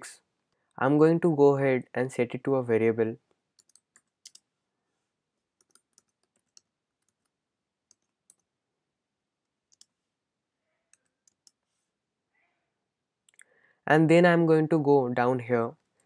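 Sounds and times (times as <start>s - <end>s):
computer keyboard keystrokes: 3.6s - 4.4s, 5.6s - 7.3s, 7.9s - 8.5s, 10.9s - 11.6s.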